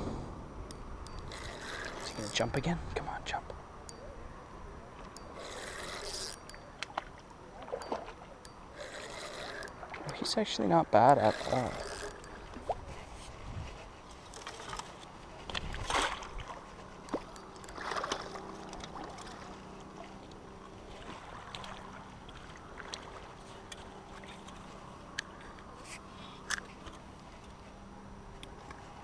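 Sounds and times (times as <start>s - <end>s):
wind rumble on microphone: 12.4s - 14.7s, 15.3s - 16.9s.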